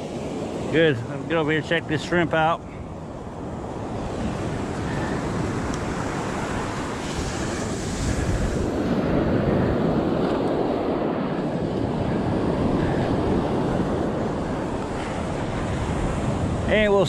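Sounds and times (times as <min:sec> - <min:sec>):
wind buffeting microphone: 0:00.0 - 0:17.0
surf breaking on beach: 0:03.7 - 0:17.0.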